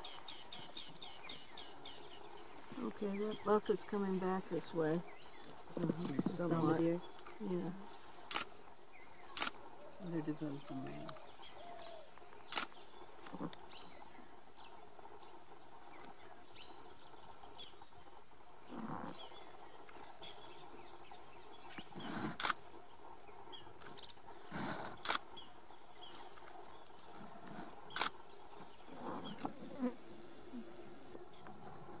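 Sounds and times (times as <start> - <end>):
insects buzzing: 0.0 - 32.0
sharp clicks: 8.3 - 8.5, 9.3 - 9.6.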